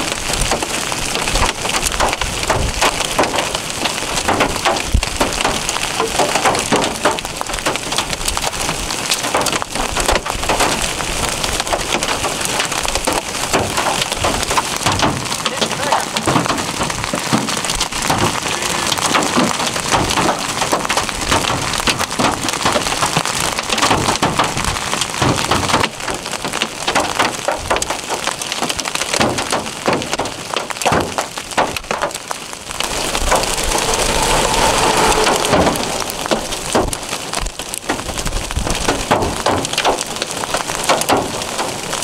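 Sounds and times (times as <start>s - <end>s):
hail and rain pelting down: 0.0s - 42.0s
vehicle approaching: 32.7s - 38.2s.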